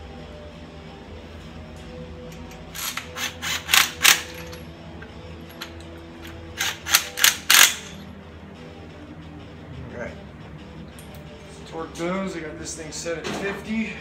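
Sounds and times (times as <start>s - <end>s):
background music: 0.0s - 14.0s
power ratchet bursts: 2.7s - 4.5s, 6.6s - 8.0s.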